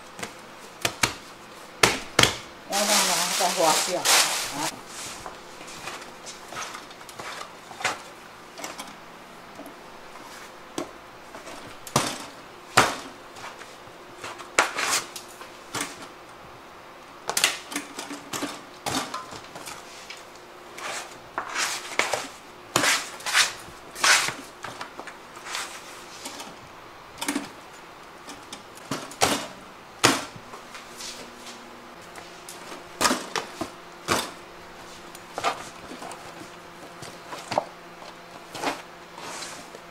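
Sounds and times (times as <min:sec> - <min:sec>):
metal trays and bowls clattering: 0:02.7 - 0:04.7.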